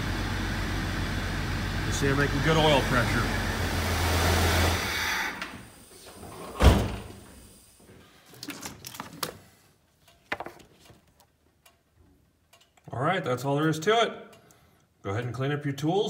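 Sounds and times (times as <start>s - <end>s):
engine bay noise: 0.0s - 7.8s
vehicle door shutting: 6.2s - 7.2s
faint clicks and knocks: 8.3s - 12.9s.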